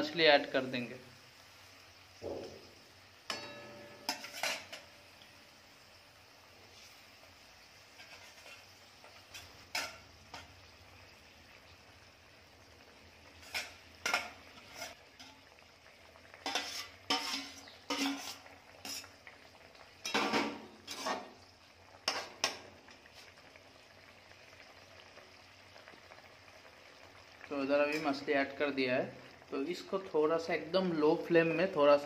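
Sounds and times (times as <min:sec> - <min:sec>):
curry sizzling faintly: 0:00.0 - 0:32.0
metal spatula scraping a pan: 0:03.3 - 0:05.0, 0:07.8 - 0:10.6, 0:13.2 - 0:15.5, 0:16.3 - 0:19.2, 0:20.0 - 0:21.4, 0:22.0 - 0:22.6.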